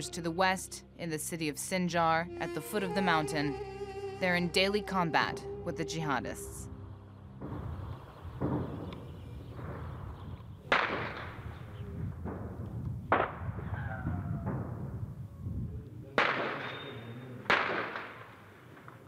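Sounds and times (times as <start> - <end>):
steady low rumble: 4.1 - 16.2
gunshots echoing: 7.3 - 15.0, 16.2 - 19.0.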